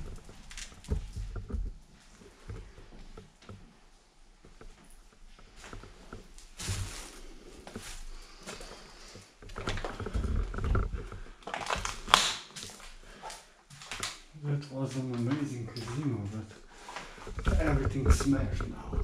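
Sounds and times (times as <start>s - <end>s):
footsteps crunching through debris: 5.5s - 14.2s
sharp crack: 11.6s - 12.8s.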